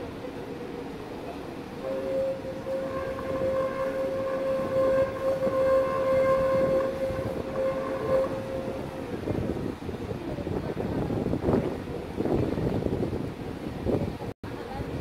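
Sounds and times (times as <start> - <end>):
tram rumbling on rails: 0.0 - 15.0
tram wheels squealing: 1.8 - 9.7.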